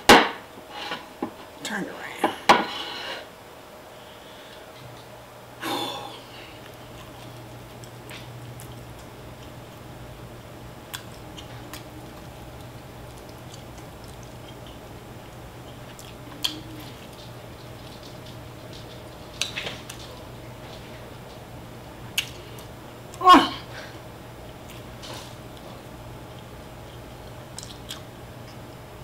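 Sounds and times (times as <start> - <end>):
steady low hum: 0.0 - 29.0
person chewing: 6.4 - 9.6, 10.9 - 20.2, 22.1 - 23.3, 24.6 - 28.8.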